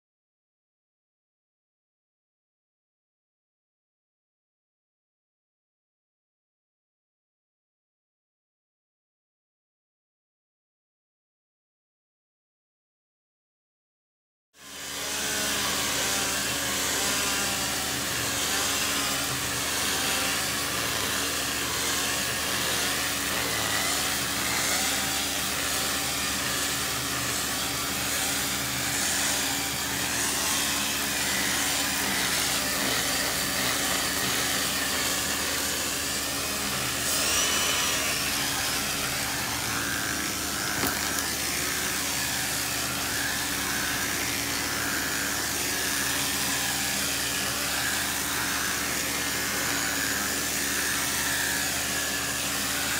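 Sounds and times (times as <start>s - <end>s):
carpet extractor vacuum motor: 14.6s - 52.9s.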